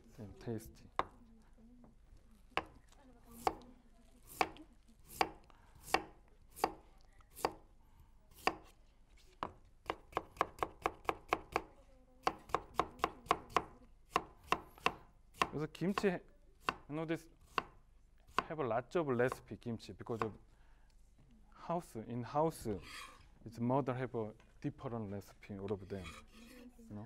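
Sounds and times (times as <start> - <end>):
knife chopping on wooden board: 3.4 - 3.6, 4.3 - 6.8, 7.4 - 7.6, 8.3 - 8.7, 9.4 - 18.5.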